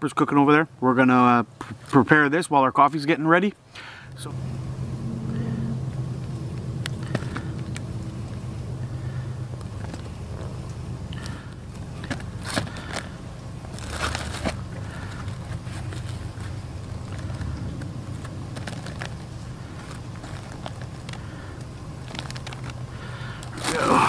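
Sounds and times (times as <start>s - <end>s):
steady low rumble: 3.9s - 24.0s
plastic bags crinkling: 11.2s - 24.0s
bread roll pulled open: 22.0s - 22.8s, 23.4s - 24.0s.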